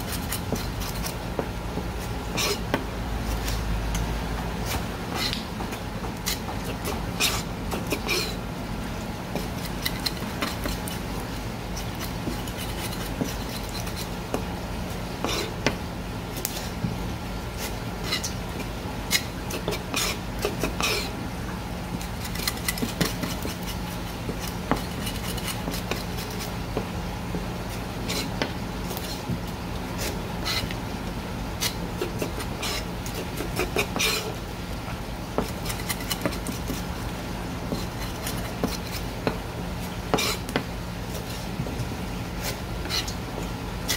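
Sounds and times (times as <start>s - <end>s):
knife on cutting board: 0.0s - 1.2s, 2.0s - 3.7s, 4.6s - 8.4s, 9.3s - 11.0s, 11.8s - 14.1s, 15.2s - 15.8s, 19.1s - 21.2s, 22.0s - 26.5s, 31.6s - 34.4s, 35.4s - 36.9s, 37.7s - 39.4s, 40.1s - 41.5s, 42.4s - 43.2s
steady low hum: 0.0s - 43.9s.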